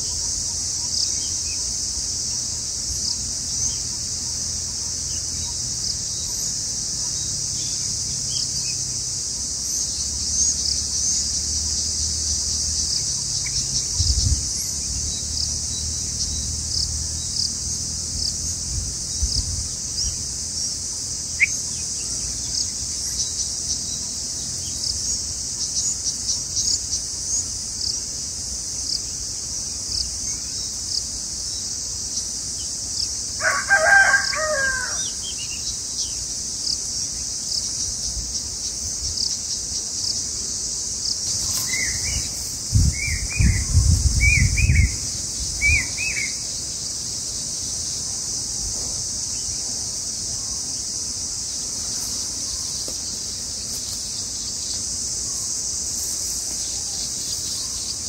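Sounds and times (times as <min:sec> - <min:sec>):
high insect drone: 0:00.0 - 0:58.0
small bird chirps: 0:21.3 - 0:27.4.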